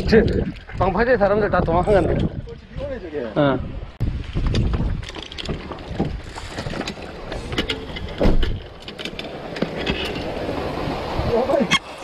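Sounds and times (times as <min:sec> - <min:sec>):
wind buffeting microphone: 0:00.0 - 0:11.7
fishing gear clicks and knocks: 0:04.4 - 0:10.4
loud thump: 0:08.2 - 0:08.6.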